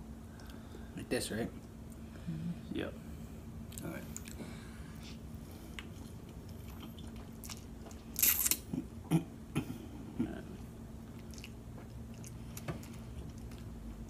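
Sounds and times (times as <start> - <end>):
chewing: 5.7 - 8.8, 10.6 - 13.8.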